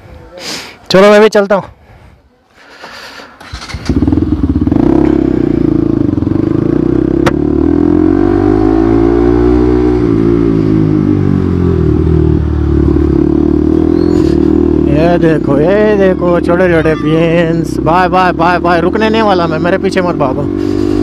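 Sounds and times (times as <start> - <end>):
motorcycle engine accelerating: 3.4 - 21.0.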